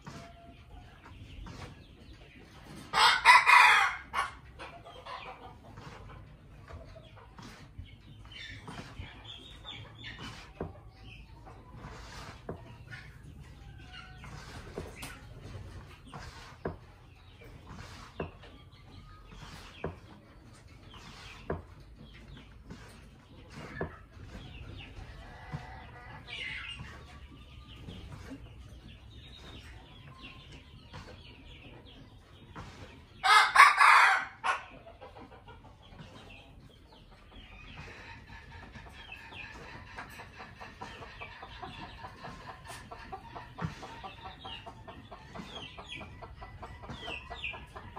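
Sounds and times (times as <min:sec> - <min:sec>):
chickens clucking: 0:00.0 - 0:47.9
young rooster crowing raspily: 0:03.0 - 0:04.1, 0:33.2 - 0:34.4.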